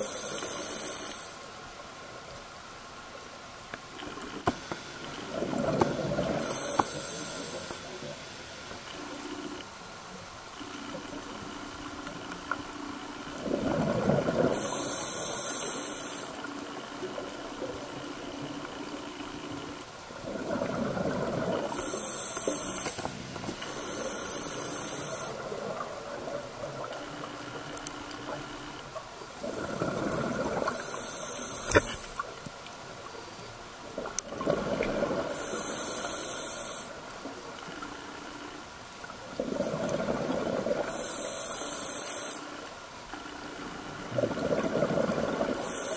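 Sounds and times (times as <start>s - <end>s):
diver breathing through regulator: 0.0s - 1.4s, 4.5s - 8.5s, 13.6s - 16.4s, 20.4s - 25.5s, 29.6s - 32.2s, 35.0s - 37.0s, 39.4s - 42.5s, 44.5s - 45.9s
faint steady hum: 0.0s - 45.9s.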